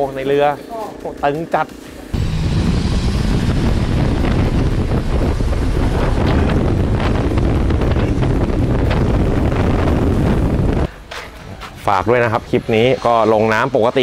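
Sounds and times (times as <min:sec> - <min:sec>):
boat engine running: 0:00.0 - 0:10.9
wind buffeting microphone: 0:02.2 - 0:12.7.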